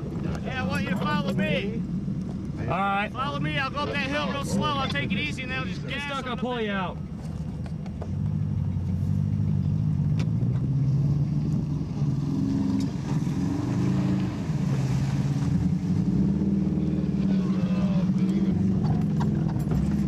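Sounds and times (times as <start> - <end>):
car engine revving under load: 7.0 - 20.0
knocks and rattles over bumps: 18.7 - 20.0.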